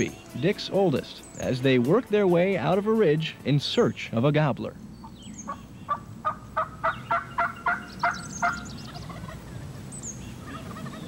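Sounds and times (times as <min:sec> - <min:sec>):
turkey mouth call yelps: 0:05.0 - 0:09.5, 0:10.4 - 0:11.0.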